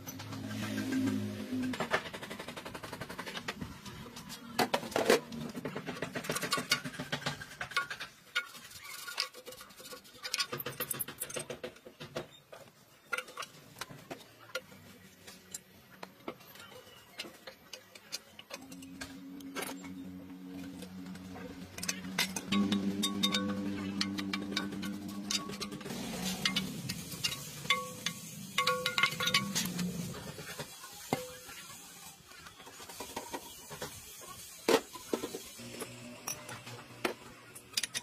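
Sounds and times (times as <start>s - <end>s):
metal parts knocking and clinking: 16.6s - 30.4s, 37.6s - 38.0s.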